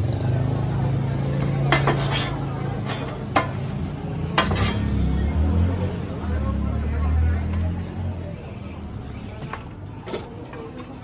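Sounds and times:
metal spatulas clinking on griddle: 1.6 - 5.0.

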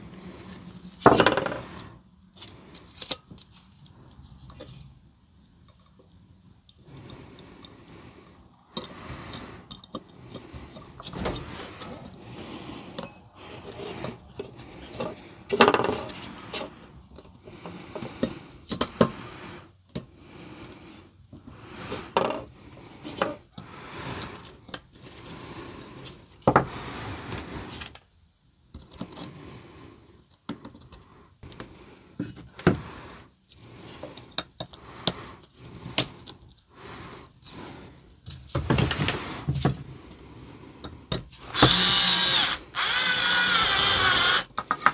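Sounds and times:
plastic and metal parts clattering: 13.8 - 16.6, 44.5 - 44.9.

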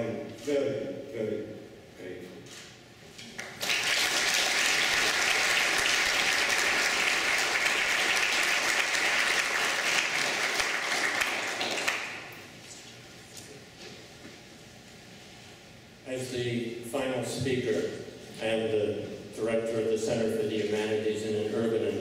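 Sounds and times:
audience applauding: 3.4 - 12.4.

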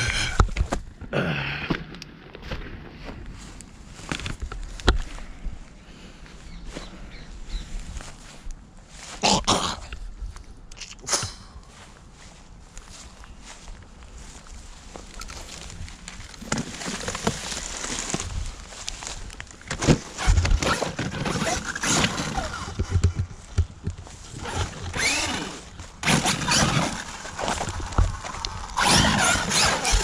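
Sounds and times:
rc car electric motor whining: 24.3 - 30.0.

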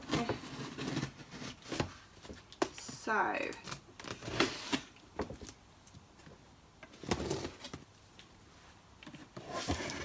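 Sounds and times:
cardboard scraping and rustling: 0.0 - 2.5, 4.0 - 5.4, 7.0 - 7.9, 9.1 - 10.0.

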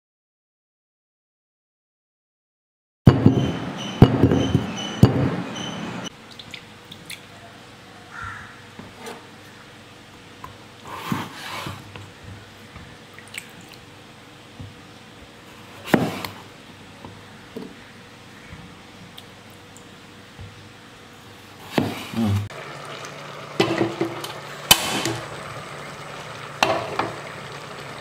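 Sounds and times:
knife cutting potatoes on board: 21.6 - 22.5.

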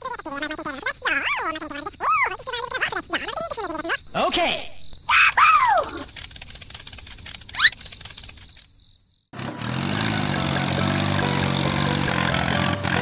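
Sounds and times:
small engine running: 9.3 - 13.0.

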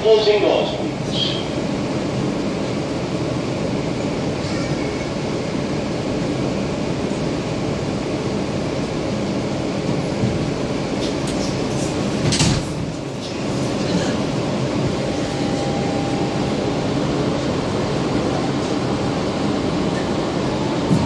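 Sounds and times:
subway car wheels and motors rumbling: 0.0 - 21.0.

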